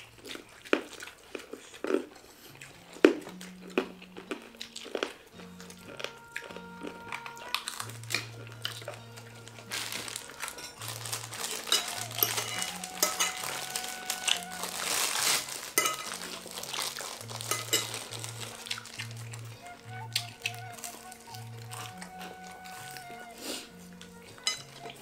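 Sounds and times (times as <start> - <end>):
crunchy snacks being chewed: 0.0 - 25.0
background music: 2.2 - 25.0
spoons clinking on plates: 6.5 - 19.2, 24.2 - 25.0.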